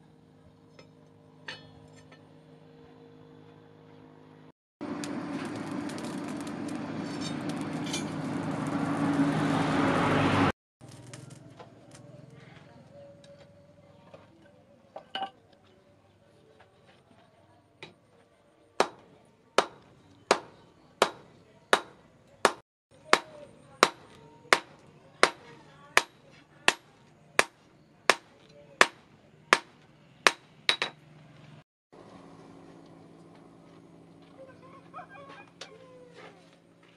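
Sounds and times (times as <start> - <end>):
hammer striking metal on anvil: 0.8 - 2.4, 27.4 - 31.0
forge fire rushing: 4.8 - 12.0
crackling coals: 4.8 - 36.9.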